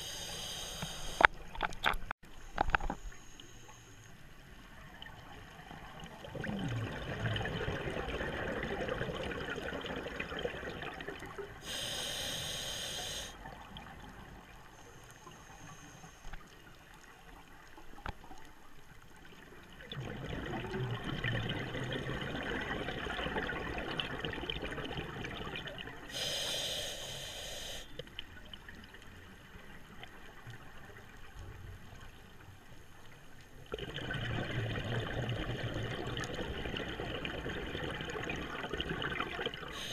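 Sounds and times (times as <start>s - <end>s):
hissing regulator inhalations: 0.0s - 1.3s, 11.6s - 13.4s, 26.1s - 27.9s
exhaled bubbles burbling underwater: 4.9s - 11.6s, 19.7s - 26.1s, 33.7s - 39.9s.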